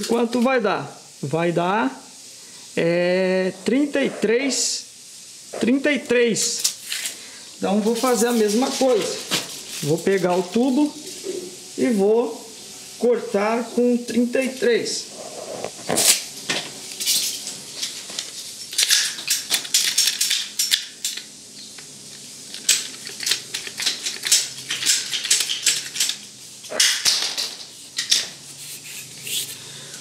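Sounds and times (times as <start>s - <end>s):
pipe and tools clattering: 15.8s - 21.3s, 22.1s - 28.4s.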